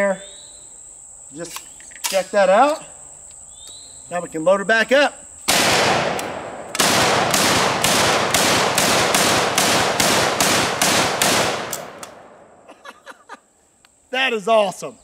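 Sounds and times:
shotgun shots with echo: 5.5 - 12.5.

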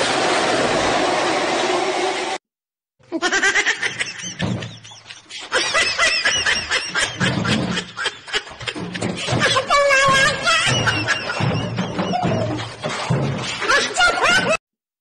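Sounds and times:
people laughing hard: 3.2 - 12.8, 13.6 - 14.6.

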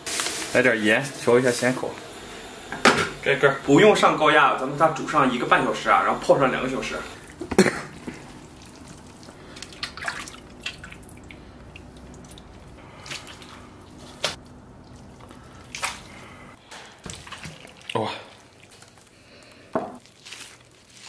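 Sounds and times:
liquid dripping and splashing: 7.2 - 21.0.

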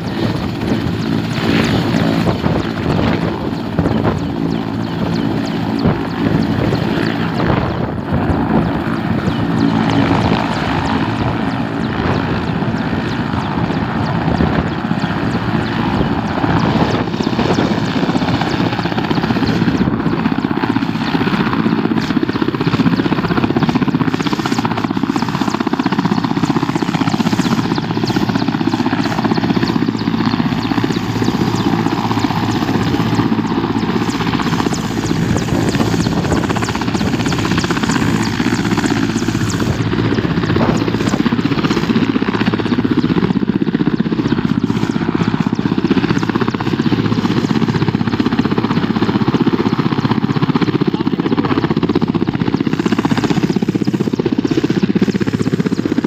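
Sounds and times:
helicopter rotor chopping: 0.0 - 56.0.

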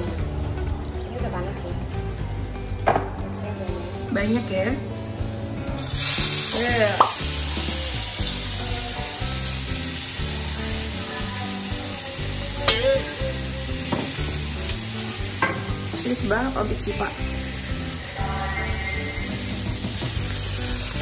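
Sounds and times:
garlic sizzling in hot oil: 3.6 - 21.0.

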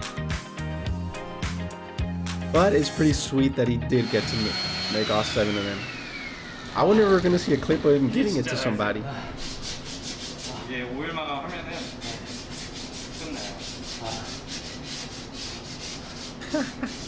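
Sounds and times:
sandpaper rubbing on wood: 9.4 - 10.8, 11.5 - 17.0.

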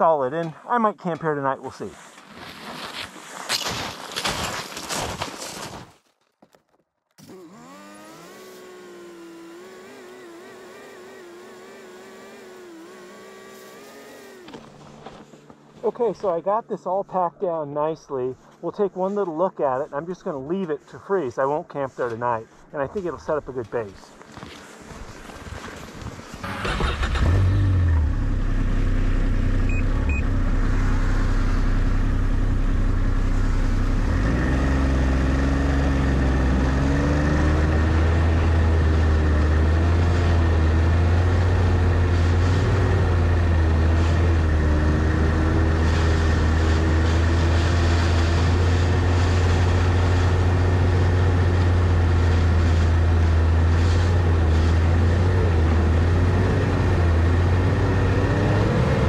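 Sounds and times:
snowmobile engine revving: 7.2 - 15.3, 25.2 - 59.0.

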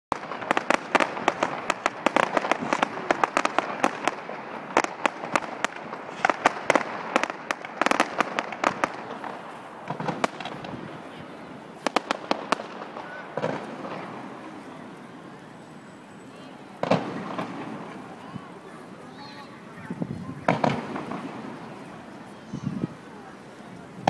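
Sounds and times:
fireworks popping and crackling: 0.1 - 15.2, 16.8 - 24.0.

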